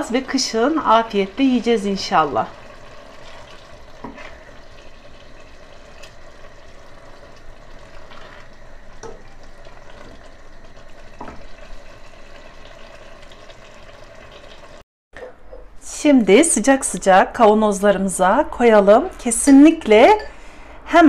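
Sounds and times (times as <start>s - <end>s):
sauce simmering and bubbling: 0.1s - 14.8s
wooden spoon stirring: 2.5s - 6.2s.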